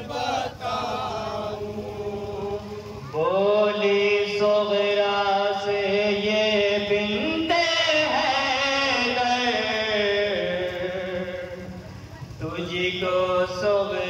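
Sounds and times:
voices joining in chant: 0.0s - 6.0s
man chanting into loudspeaker: 1.4s - 14.0s.

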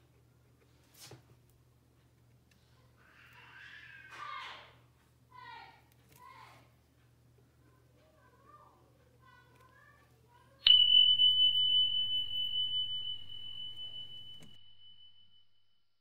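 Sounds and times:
bell ding: 10.7s - 15.4s.

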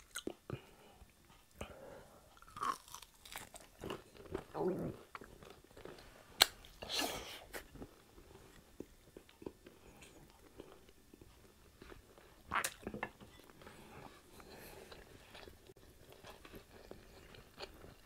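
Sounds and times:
chewing crispy fried meat: 2.3s - 6.5s, 14.0s - 18.0s.

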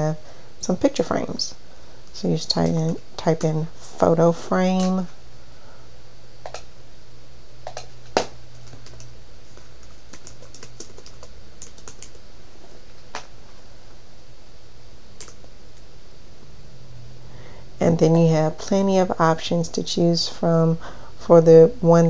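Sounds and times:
computer keyboard typing: 7.6s - 12.2s, 15.2s - 15.4s.

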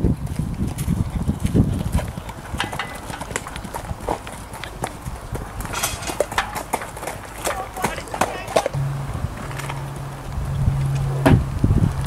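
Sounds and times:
horse hoofbeats on sand: 0.0s - 11.4s
low rumble: 8.7s - 12.0s.

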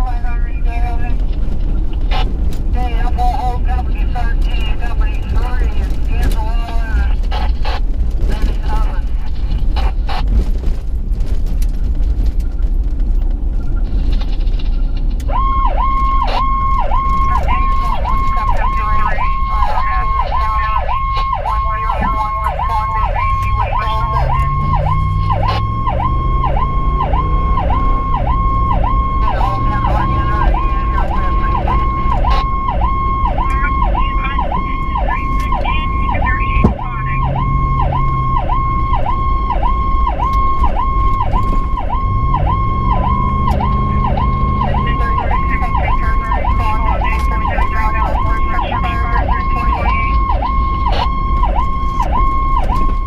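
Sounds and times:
vehicle engine accelerating: 0.6s - 53.0s
electronic siren wailing: 15.2s - 53.0s.

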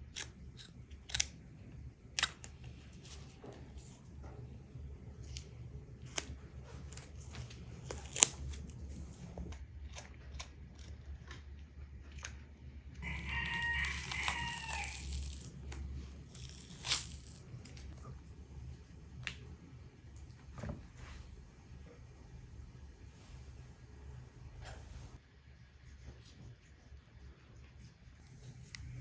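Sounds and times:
rooster crowing: 13.0s - 15.5s
membrane pulled off meat: 13.0s - 17.9s.

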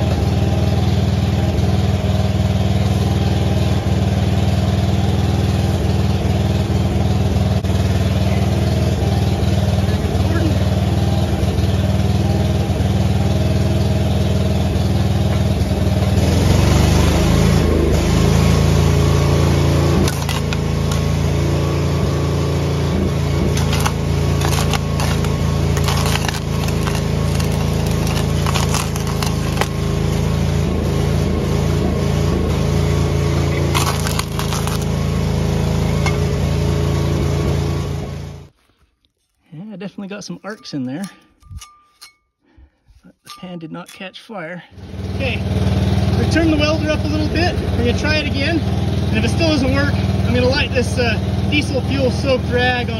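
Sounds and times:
engine-driven welder running: 0.0s - 38.6s, 44.8s - 52.9s
welding arc crackling and popping: 20.0s - 21.3s, 23.5s - 30.4s, 33.6s - 35.1s.

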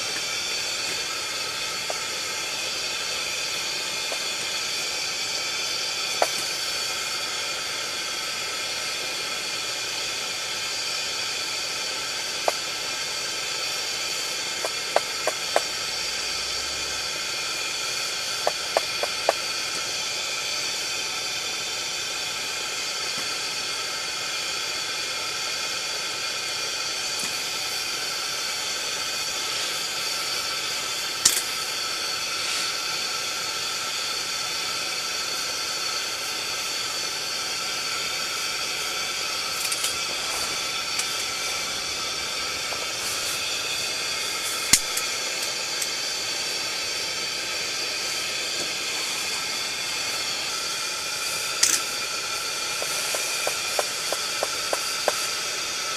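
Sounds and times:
fuel burner hissing: 0.0s - 55.9s
sharp clicks: 52.8s - 55.2s.

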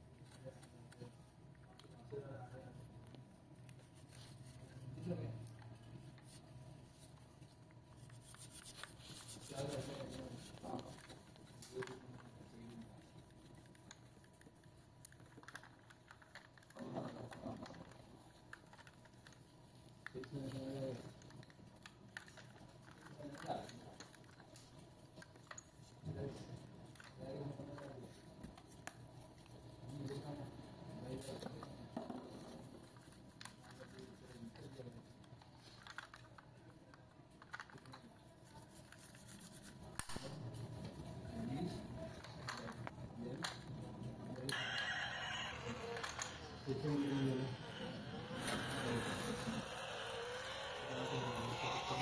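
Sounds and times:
cloth rubbing on model car: 6.2s - 13.4s, 44.5s - 52.0s.

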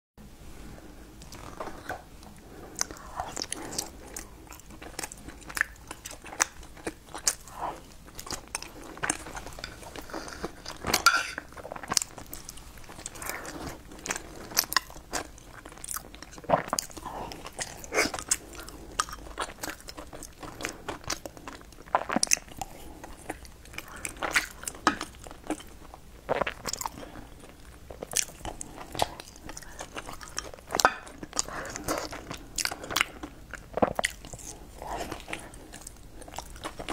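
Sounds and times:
person chewing food: 0.8s - 36.9s.

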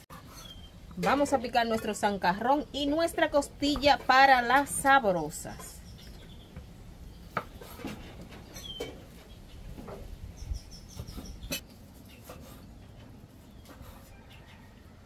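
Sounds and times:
bird chirps: 0.3s - 1.0s, 5.6s - 7.4s, 8.4s - 9.6s, 10.3s - 11.6s.

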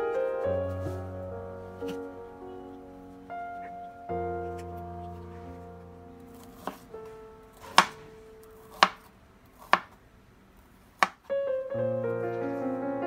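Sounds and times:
soft piano music: 0.0s - 9.8s, 11.2s - 13.0s
cleaver chopping on cutting board: 7.6s - 8.0s.

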